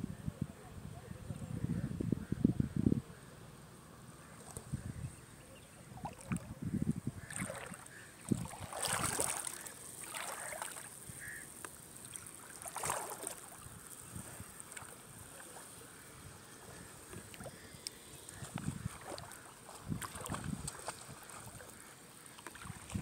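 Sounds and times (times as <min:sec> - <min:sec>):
small waves lapping: 0:05.8 - 0:06.6, 0:07.2 - 0:23.0.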